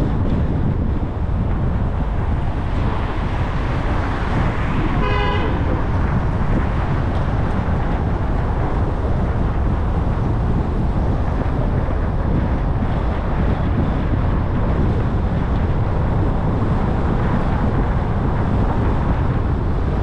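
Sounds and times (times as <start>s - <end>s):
city traffic rumble: 0.0s - 20.0s
car horn toot: 4.9s - 5.7s.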